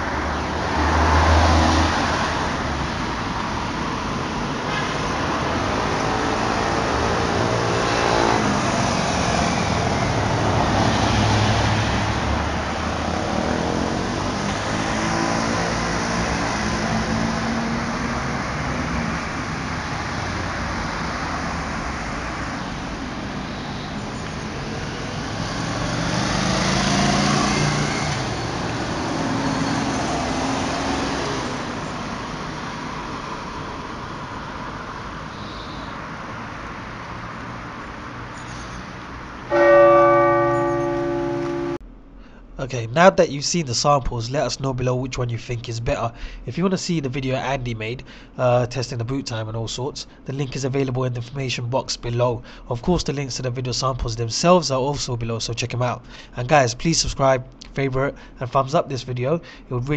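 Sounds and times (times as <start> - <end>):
cars driving past: 0.0 - 42.7
steady traffic noise: 0.0 - 59.9
motorcycle passing: 5.7 - 18.8, 24.7 - 33.7, 39.4 - 41.8.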